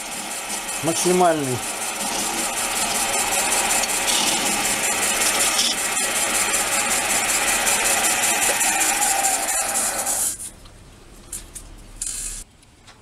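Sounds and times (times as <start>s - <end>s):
lathe motor hum: 0.0s - 10.4s
hissing scrape of wood shavings: 0.0s - 10.6s.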